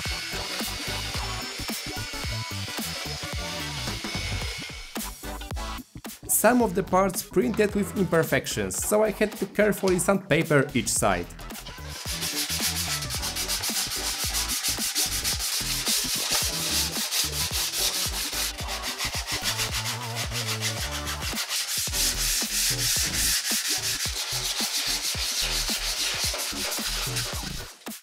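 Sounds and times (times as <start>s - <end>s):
sanding pad rubbing plastic: 0.0s - 4.9s, 11.6s - 27.8s.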